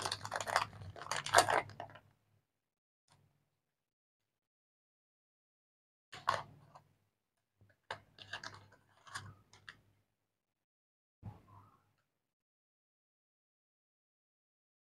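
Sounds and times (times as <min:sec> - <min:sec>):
foil wrapper crinkling: 0:00.0 - 0:02.0.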